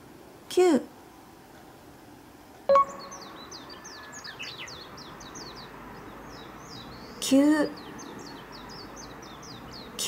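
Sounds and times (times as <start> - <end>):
short bright ding: 2.7 - 3.2
small birds chirping: 2.7 - 10.0.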